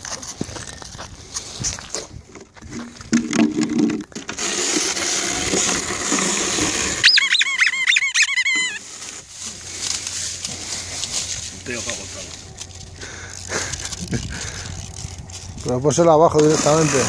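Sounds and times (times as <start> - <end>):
squeaky dog toy squeaking: 7.0 - 8.8.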